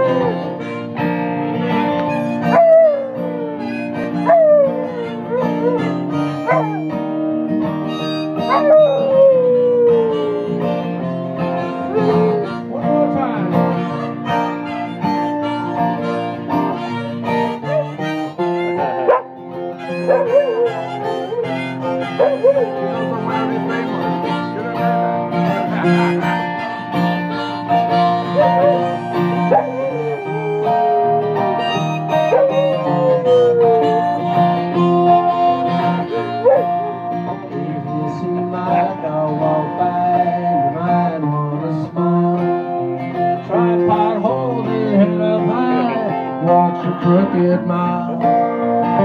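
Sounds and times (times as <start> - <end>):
dog howling: 0.0 - 0.5, 2.4 - 7.0, 8.4 - 10.9, 11.7 - 13.0, 17.6 - 18.1, 18.8 - 24.0, 28.2 - 34.2, 35.0 - 36.9
harmonica chords: 0.0 - 49.0.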